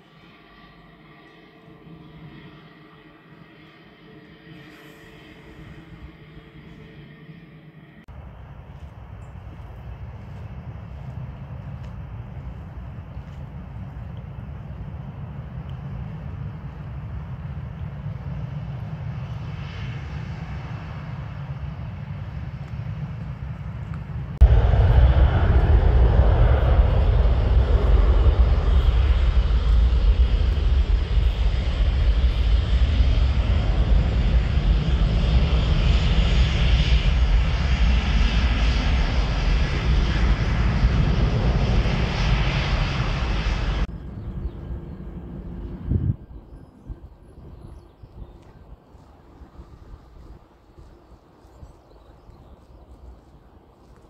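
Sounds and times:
jet engine roar: 0.0s - 54.0s.

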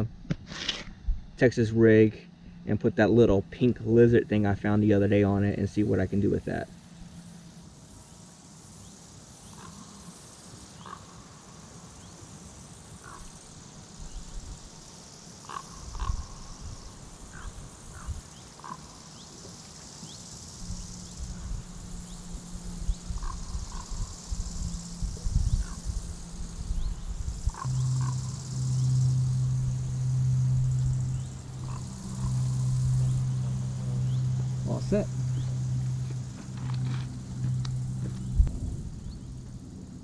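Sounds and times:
high-pitched insect hiss: 0.0s - 40.0s
low rumble: 20.7s - 40.0s.

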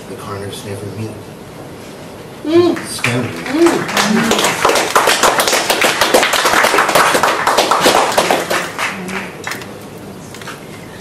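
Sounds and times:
audience applauding: 2.8s - 9.9s.

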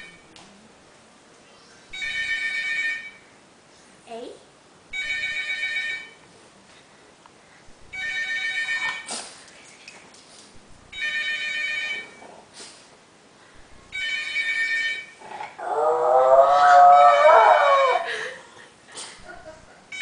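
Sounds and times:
telephone ringing: 1.9s - 3.3s, 4.9s - 6.2s, 7.9s - 9.1s, 10.9s - 12.2s, 13.9s - 15.2s
dog howling: 15.2s - 18.1s.

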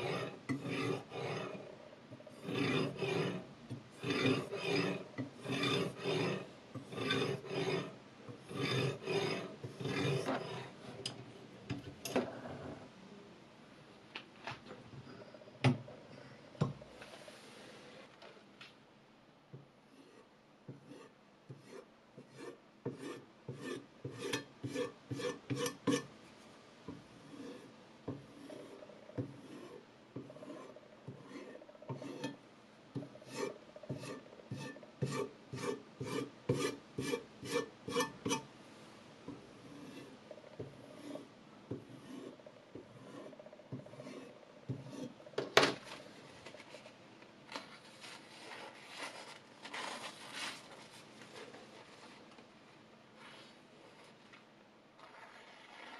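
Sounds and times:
stone rasping on knife edge: 0.0s - 10.7s, 20.8s - 26.1s, 27.2s - 27.7s, 28.3s - 32.4s, 33.0s - 38.5s, 39.6s - 45.2s
paper towel rustling: 45.8s - 55.9s.

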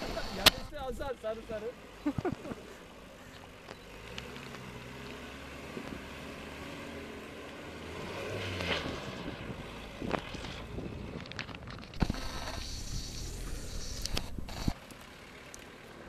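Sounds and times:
distant buggy engine: 0.0s - 16.0s
wind on microphone: 8.8s - 11.3s.

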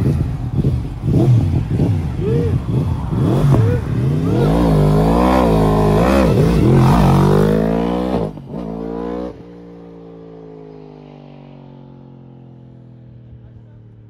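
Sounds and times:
motorcycle engine revving: 0.0s - 9.7s.

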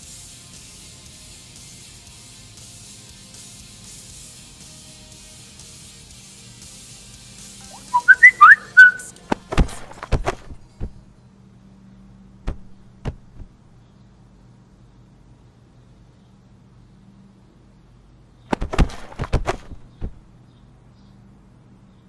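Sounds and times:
person whistling short phrase: 7.6s - 9.1s
sharp knocks and clicks: 12.5s - 13.6s.

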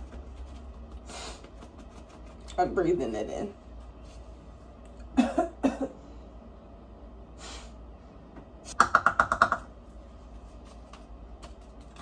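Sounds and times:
woman coughing: 5.1s - 6.0s.

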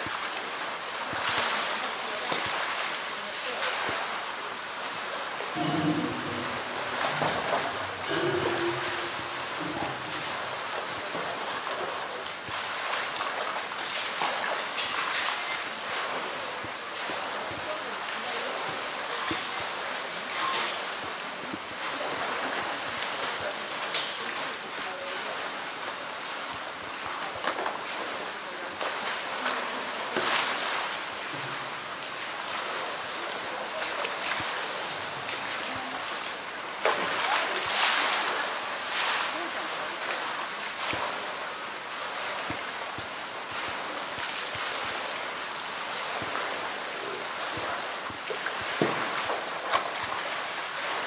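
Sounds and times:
cicadas droning: 0.0s - 51.0s
water splashing and sloshing: 0.0s - 51.0s.

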